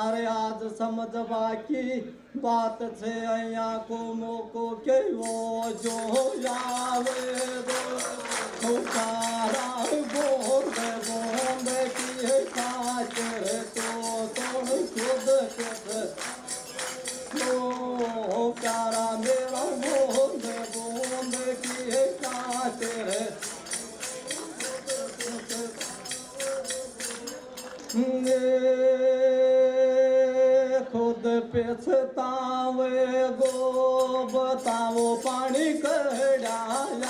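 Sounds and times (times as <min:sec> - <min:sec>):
man singing: 0:00.0 - 0:37.0
tambourine jingles: 0:05.2 - 0:28.6, 0:33.4 - 0:37.0.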